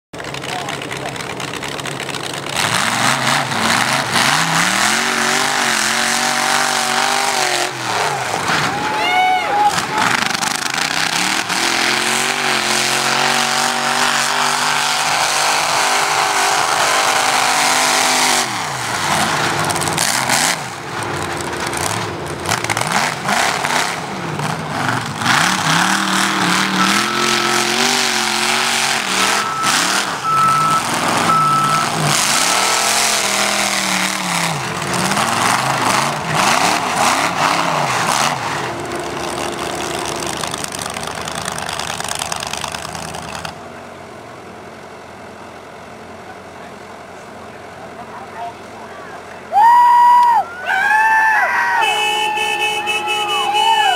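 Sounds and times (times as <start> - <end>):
truck engine revving: 0.2 - 44.0.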